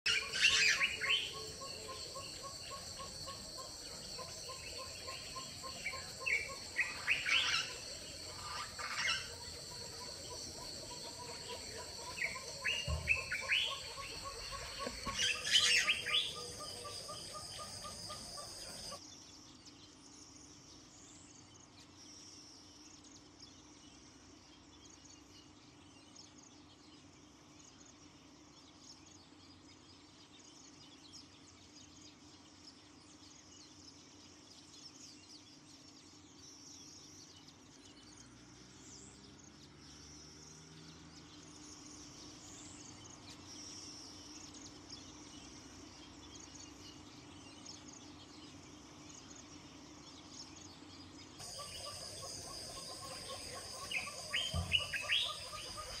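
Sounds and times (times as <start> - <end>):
birds chirping: 0.0 - 19.0, 41.6 - 56.0
high insect drone: 0.1 - 19.0, 51.4 - 56.0.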